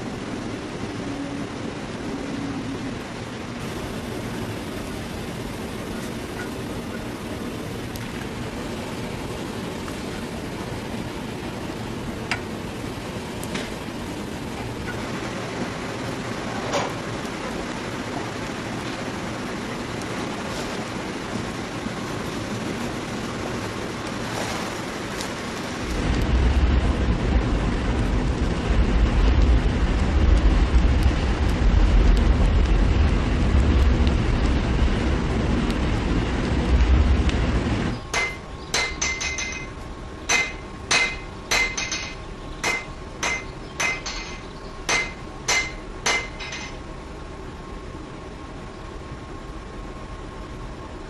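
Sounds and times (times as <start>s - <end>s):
deep rumbling drone: 24.8s - 48.0s
hammer blows on metal: 38.1s - 39.7s, 40.3s - 46.7s.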